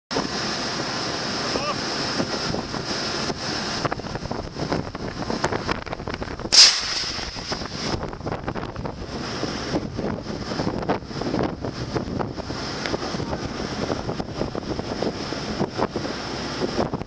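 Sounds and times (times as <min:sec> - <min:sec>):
sea noise: 0:00.1 - 0:17.0
wind on microphone: 0:01.5 - 0:17.0
rocket launching whoosh: 0:06.4 - 0:08.9.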